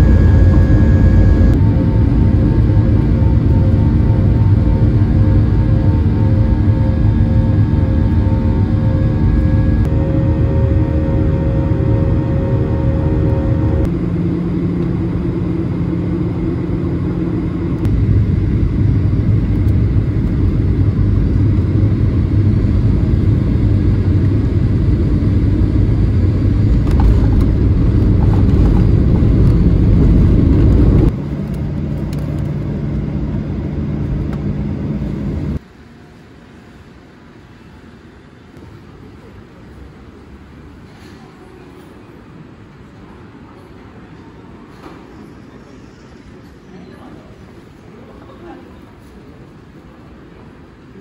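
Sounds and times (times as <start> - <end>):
vehicle interior rumble: 0.0 - 14.1, 14.7 - 35.6.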